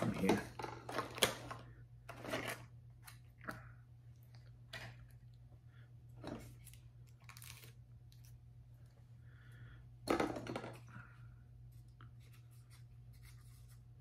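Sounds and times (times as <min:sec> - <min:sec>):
plastic packaging crinkling: 0:06.6 - 0:08.3.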